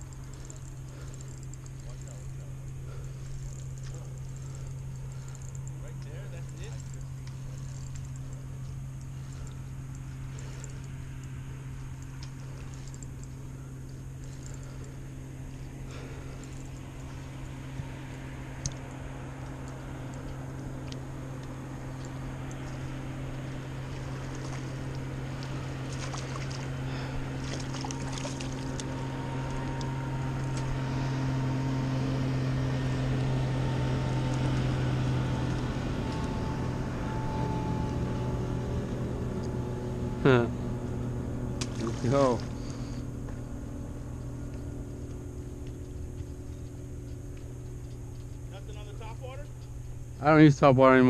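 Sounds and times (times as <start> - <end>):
motorboat engine droning: 0.0 - 51.0
small water splashes: 23.9 - 29.6, 41.6 - 42.9.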